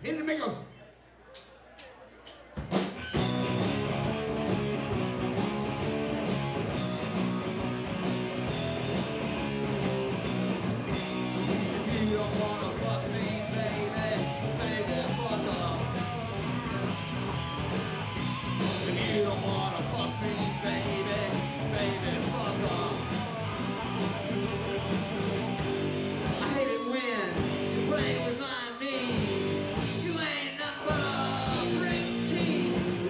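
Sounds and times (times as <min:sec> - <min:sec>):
drum kit steady beat: 0:02.5 - 0:33.0
bass guitar: 0:02.6 - 0:33.0
distorted electric guitar: 0:03.0 - 0:33.0
person singing: 0:11.8 - 0:16.2, 0:18.6 - 0:23.5, 0:26.4 - 0:33.0.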